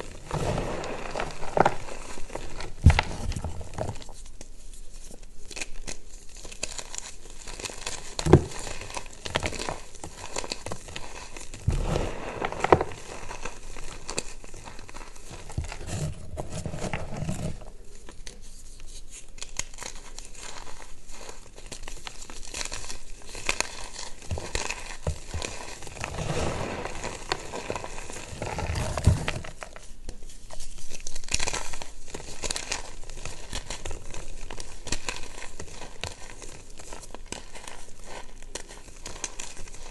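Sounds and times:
chalk powder sifted through fingers: 0:00.0 - 0:05.2
chalk crunching and crumbling: 0:00.0 - 0:39.9
chalk pieces snapping: 0:30.8 - 0:39.9.

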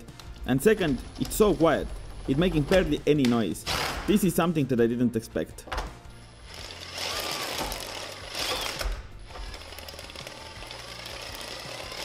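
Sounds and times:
plastic track links rattling: 0:00.2 - 0:03.4
drill motor whirring: 0:06.2 - 0:12.0.

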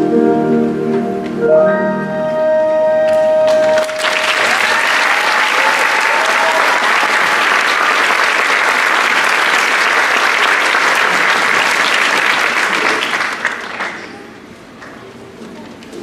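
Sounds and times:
audience applauding: 0:03.5 - 0:15.1.

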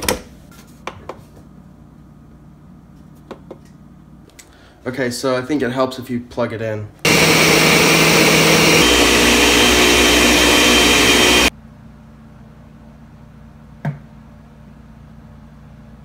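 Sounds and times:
blender motor running: 0:07.1 - 0:11.5.

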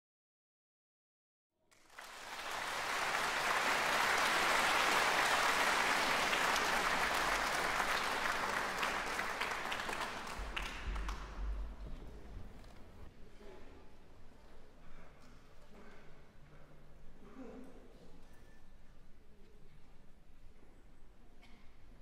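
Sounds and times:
audience applauding: 0:01.7 - 0:12.8.

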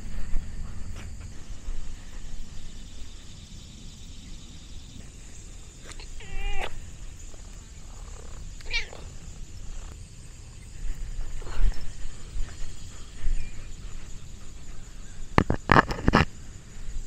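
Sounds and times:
cat meowing: 0:06.1 - 0:06.8, 0:08.6 - 0:09.0.

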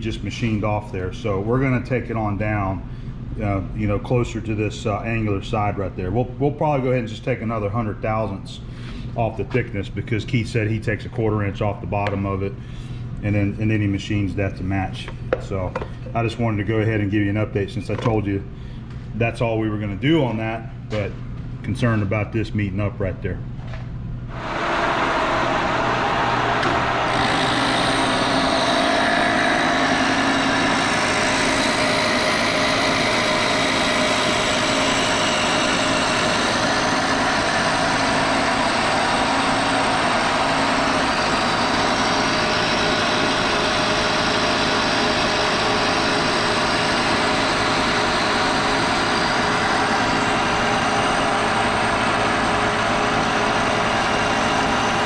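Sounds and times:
milling machine cutting metal: 0:24.4 - 0:55.0.

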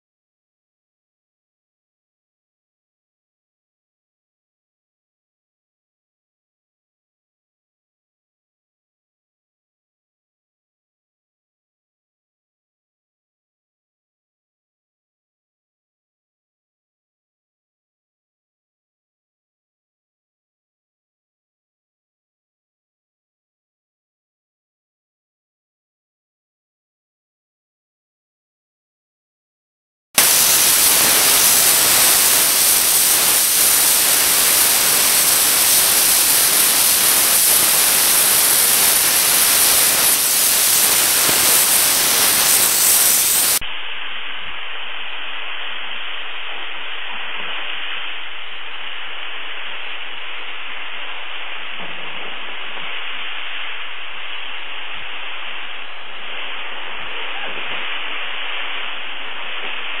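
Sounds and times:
steam cleaner jet hissing: 0:30.2 - 0:44.3.

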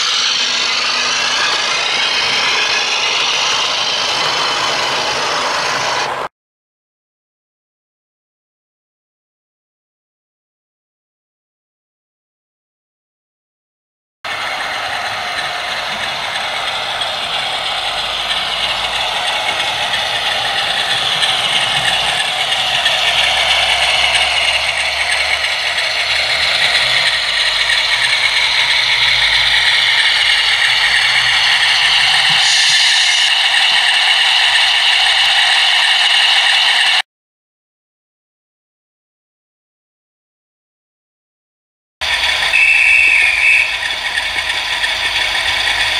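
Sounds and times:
model train rattling on track: 0:00.0 - 0:06.3, 0:14.3 - 0:37.0, 0:42.0 - 0:45.9.

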